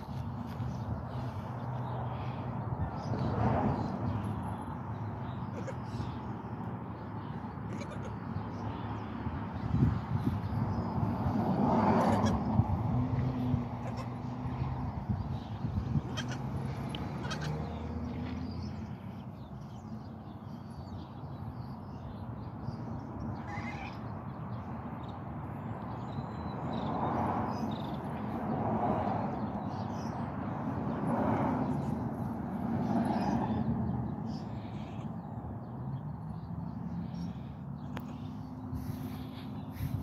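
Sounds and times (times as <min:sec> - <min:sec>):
goat kids bleating: 0:07.7 - 0:08.2, 0:12.0 - 0:12.4, 0:13.8 - 0:14.2, 0:16.0 - 0:16.4, 0:17.1 - 0:17.8, 0:23.4 - 0:24.0.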